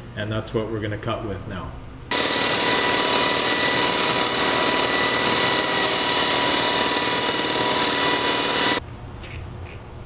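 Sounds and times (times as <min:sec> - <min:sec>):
concrete grinder grinding floor: 0:02.1 - 0:08.8.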